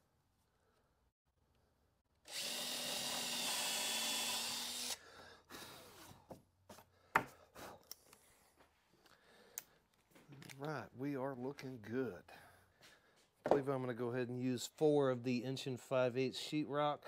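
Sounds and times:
power drill running: 2.2s - 5.0s.

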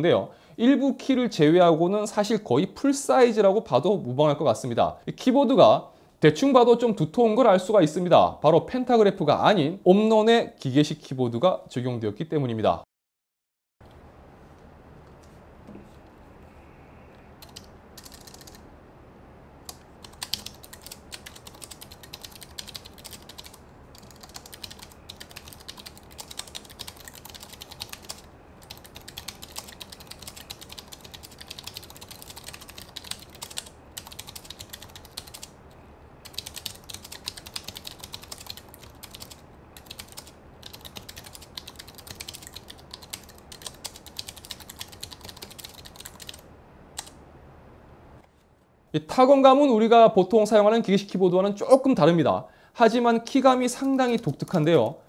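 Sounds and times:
mechanical keyboard typing: 17.4s - 18.6s, 19.7s - 35.5s, 36.2s - 46.4s, 47.0s - 47.2s.

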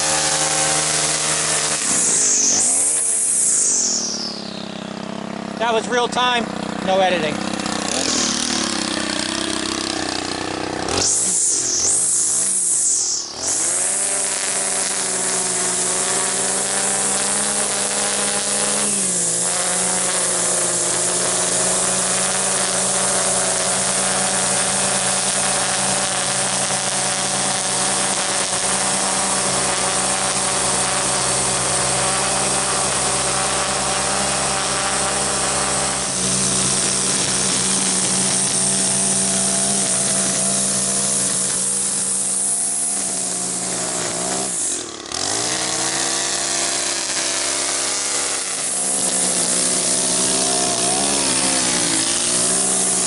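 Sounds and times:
string trimmer engine running: 0.0s - 53.0s.

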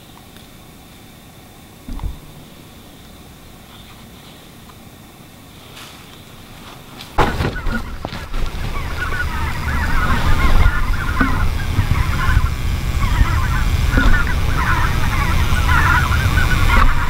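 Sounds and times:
flock of geese calling: 0.0s - 17.0s.

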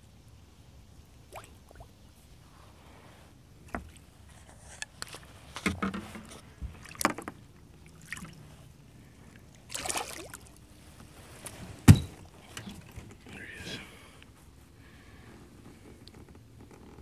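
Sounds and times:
fish thrashing and splashing: 9.6s - 10.6s.

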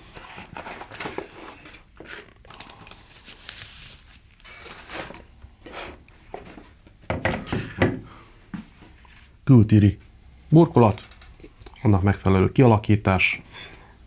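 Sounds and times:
packaging rustling and crinkling: 0.0s - 5.4s.

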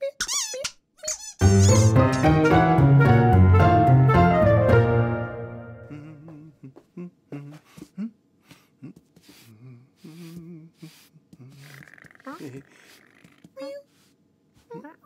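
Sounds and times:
cartoon music on bowed strings: 1.4s - 5.8s
person humming: 5.8s - 13.9s.

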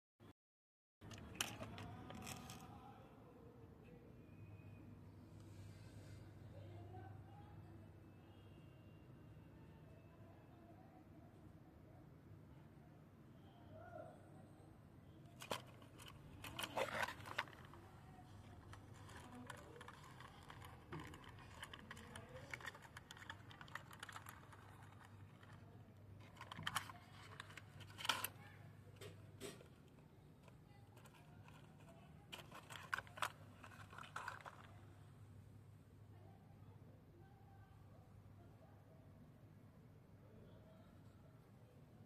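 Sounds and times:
plastic toy clicks and rattles: 1.0s - 2.7s, 15.4s - 25.6s, 26.2s - 28.4s, 29.0s - 34.8s
faint low hum: 1.0s - 42.0s.

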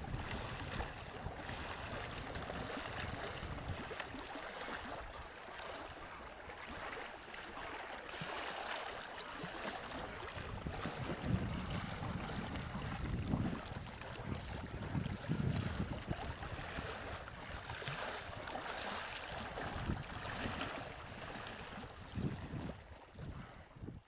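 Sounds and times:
water lapping: 0.0s - 24.0s
wind gusting on microphone: 10.4s - 17.2s, 19.6s - 20.8s, 21.7s - 24.0s.

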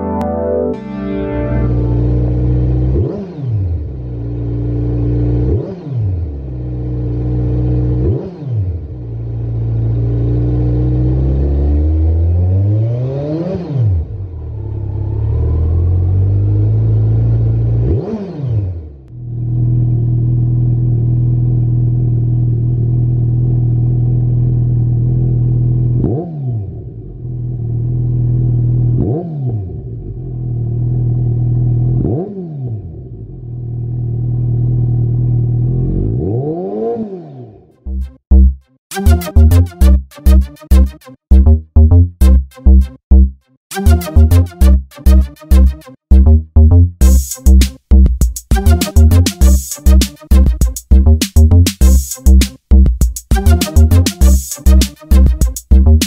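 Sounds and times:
motorcycle engine revving: 1.9s - 38.2s.

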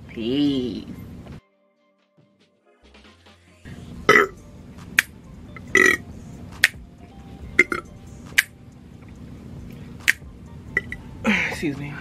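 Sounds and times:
background music: 0.1s - 12.0s
woman burping loudly: 4.1s - 4.4s, 5.7s - 6.0s.

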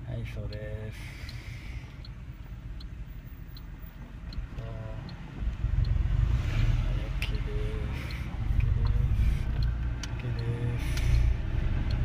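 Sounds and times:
car engine rumble: 0.0s - 12.0s
car turn signal ticking: 0.0s - 12.0s.

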